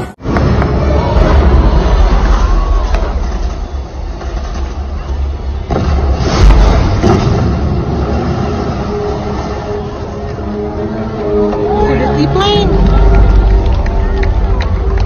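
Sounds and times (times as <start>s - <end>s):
low rumble of pyrotechnic blasts: 0.0s - 11.2s
loud bang: 0.2s - 9.4s.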